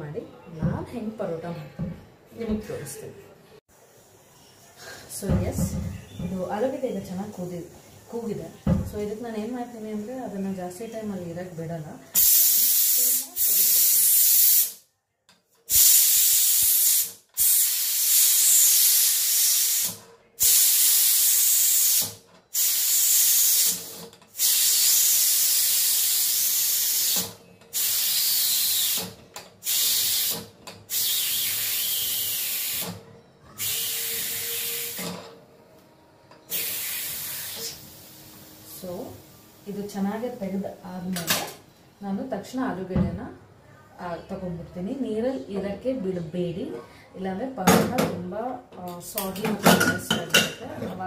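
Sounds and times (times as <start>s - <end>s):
pressure cooker steam hissing: 12.2s - 14.8s, 15.7s - 35.2s, 36.5s - 39.4s.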